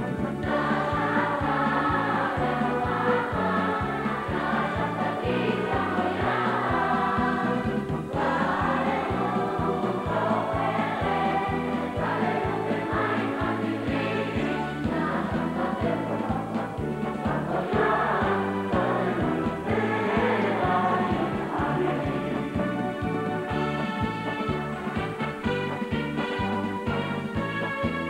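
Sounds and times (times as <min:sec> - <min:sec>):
pulsing bass line: 0:00.0 - 0:27.5
boys' choir singing: 0:00.4 - 0:22.6.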